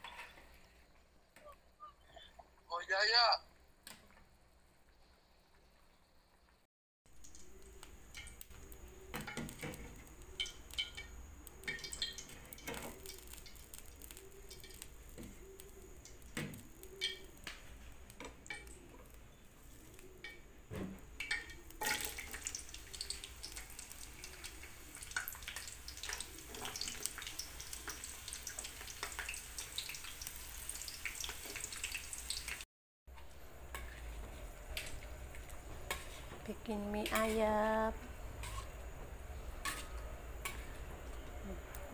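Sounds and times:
soup simmering in a pot: 4.1 - 36.8
shallots sizzling in oil: 4.5 - 41.9
drips and light clinks: 9.3 - 14.9.

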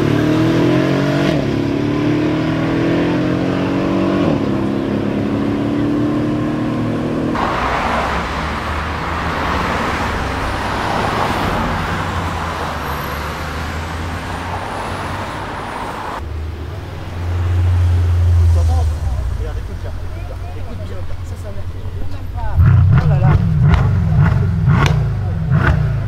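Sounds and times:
car engine running: 0.0 - 26.0
steady rushing noise: 16.2 - 24.6
deep engine drone: 16.2 - 26.0.

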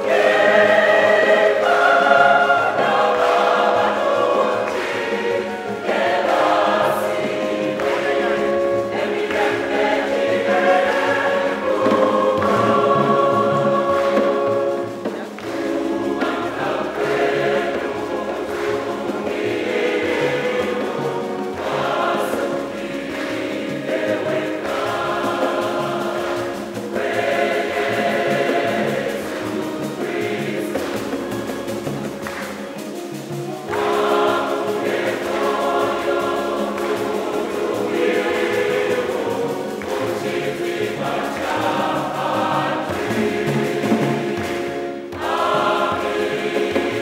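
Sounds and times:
church choir singing a hymn: 0.0 - 47.0.

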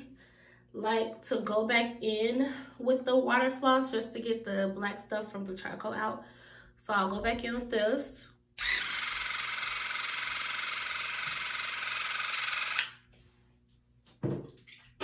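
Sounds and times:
water flosser pulsing buzz: 8.6 - 13.0.

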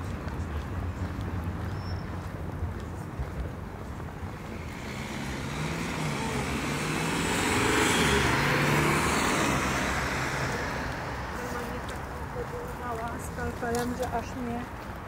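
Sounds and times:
vehicle passing by: 3.8 - 14.1.

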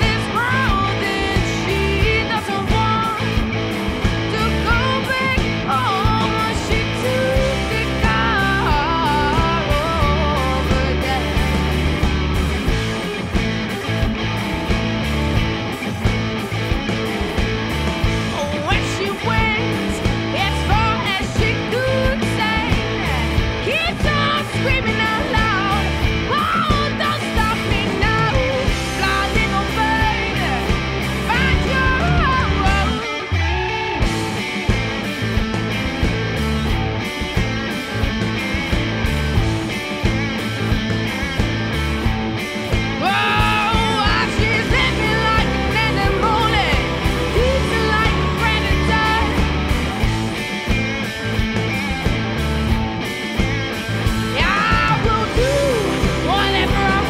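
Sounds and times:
woman singing: 0.0 - 3.4, 4.2 - 11.6, 18.3 - 33.3, 43.0 - 49.6, 54.3 - 57.0
rock song with electric guitar: 0.0 - 57.0.

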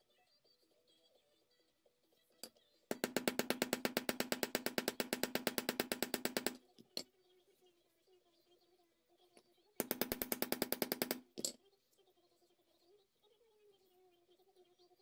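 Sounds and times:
small hammer tapping steel pin: 2.9 - 7.1, 9.8 - 11.6.

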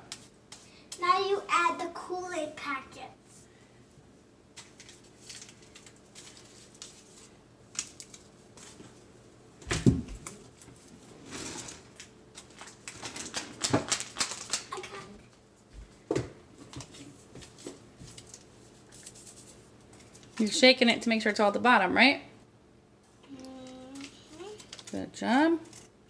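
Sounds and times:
paper packets crinkling: 4.6 - 8.8, 11.7 - 15.1, 23.6 - 25.1
paper rustling: 4.6 - 9.0, 10.1 - 15.1, 16.6 - 20.4, 23.4 - 25.0.

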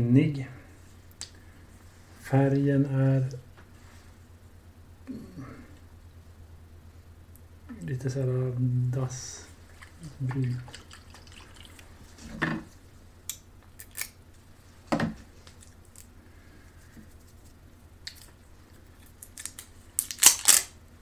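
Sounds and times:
crackling handling noise: 10.8 - 20.8.

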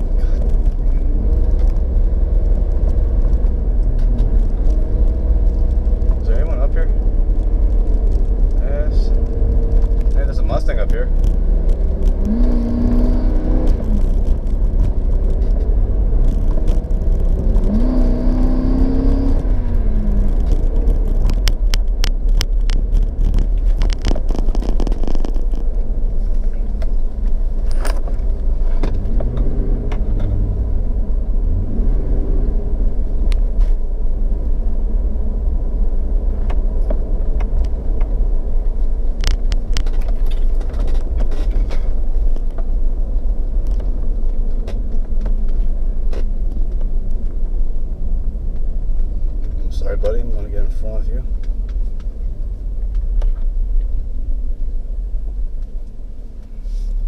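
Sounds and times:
road and engine rumble: 0.0 - 57.0.

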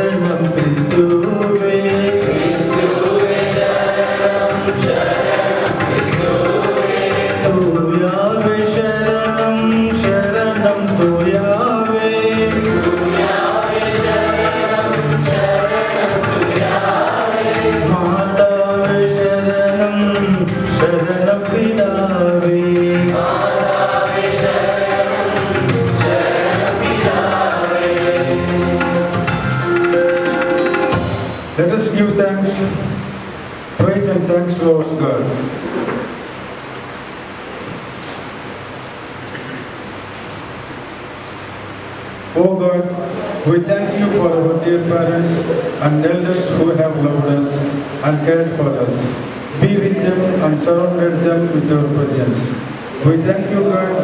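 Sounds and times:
congregation singing a hymn: 0.0 - 36.2, 41.2 - 54.0
man speaking into a microphone: 31.6 - 33.0, 33.8 - 35.5, 42.4 - 54.0.

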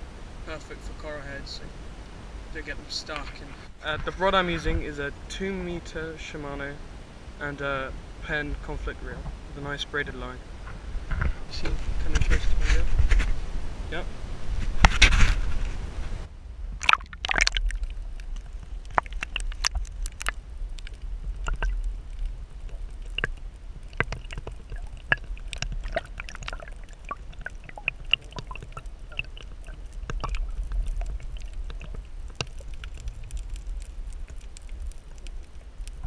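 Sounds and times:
low rumble: 10.3 - 36.0
sharp clicks and crackles: 16.8 - 36.0
underwater water sloshing: 16.8 - 36.0.

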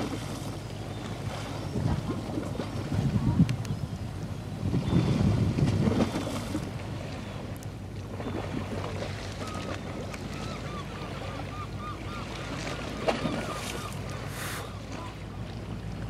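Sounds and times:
wind on microphone: 1.7 - 7.0.

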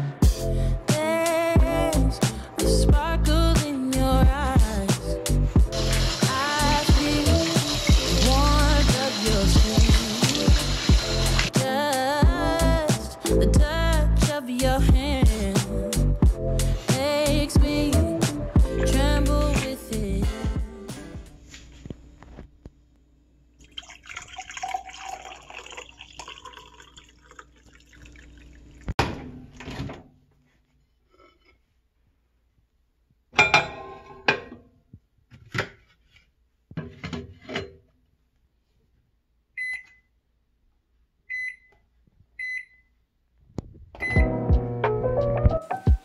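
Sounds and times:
hot water pouring into a mug: 5.7 - 11.5, 23.6 - 28.9
microwave keypad beeps: 39.6 - 40.1, 41.3 - 41.7, 42.4 - 42.9, 44.0 - 44.3.

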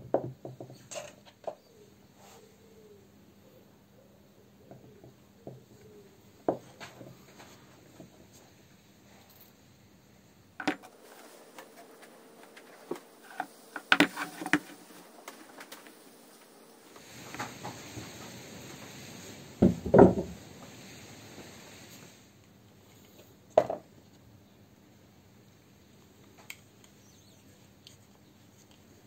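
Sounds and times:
parts clicking and knocking: 10.6 - 16.2.

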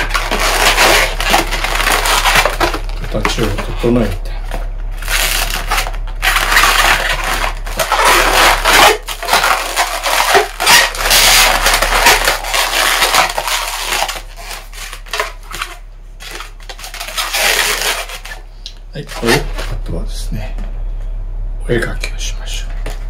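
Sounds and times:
balloons rubbing squeaking: 0.0 - 4.4, 5.0 - 15.6, 16.2 - 18.4.

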